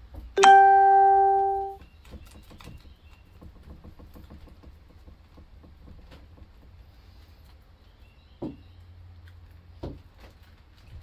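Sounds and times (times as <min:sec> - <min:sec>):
loud ringing tone: 0:00.4 - 0:01.8.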